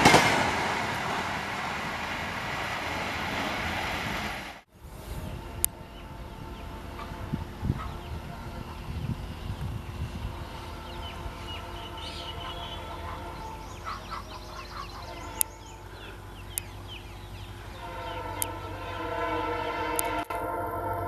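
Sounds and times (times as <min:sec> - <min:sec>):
diesel locomotive horn and hum: 0:04.8 - 0:21.0
birds chirping: 0:05.0 - 0:19.6.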